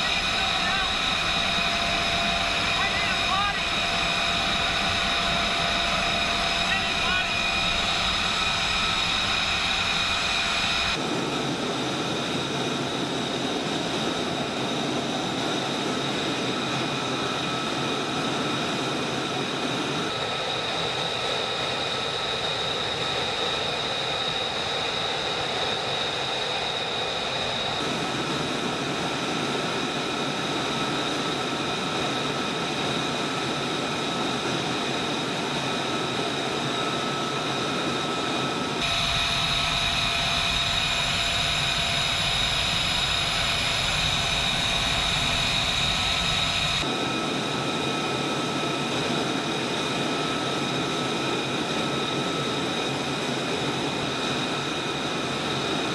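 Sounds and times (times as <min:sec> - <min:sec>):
jet engine idling whine: 0:00.0 - 0:55.9
rush of jet noise: 0:00.0 - 0:55.9.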